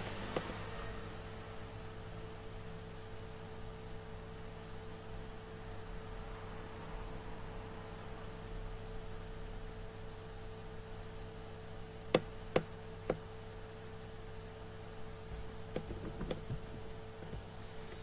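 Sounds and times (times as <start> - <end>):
electrical hum: 0.0 - 18.0
faint clicks and knocks: 15.3 - 18.0.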